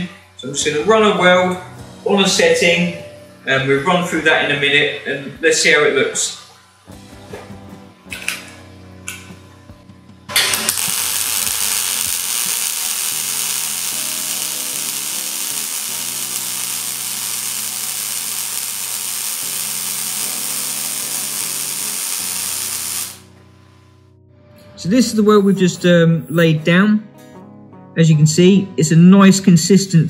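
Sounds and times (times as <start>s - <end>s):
welding arc hissing: 10.3s - 23.4s.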